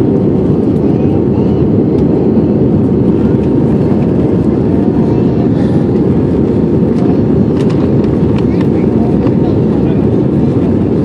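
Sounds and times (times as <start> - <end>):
airplane cabin noise: 0.0 - 11.0.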